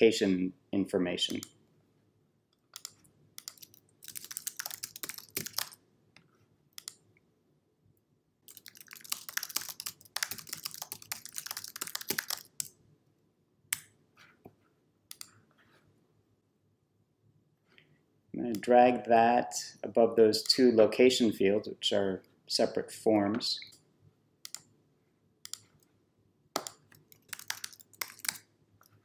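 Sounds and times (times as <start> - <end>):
typing on a computer keyboard: 2.7 - 5.8, 8.5 - 12.7, 26.6 - 29.0.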